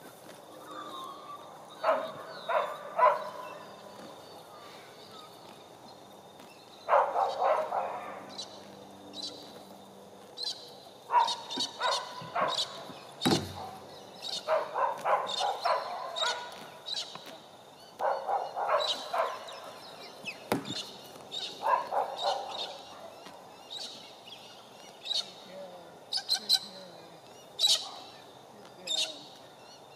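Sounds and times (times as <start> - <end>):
birds chirping: 0.0 - 29.9
dog barking: 1.8 - 3.6, 6.9 - 8.3, 11.1 - 12.8, 14.4 - 16.6, 18.0 - 19.8, 21.6 - 23.2, 27.7 - 28.1
sharp knocks: 13.2 - 13.6, 20.5 - 20.8.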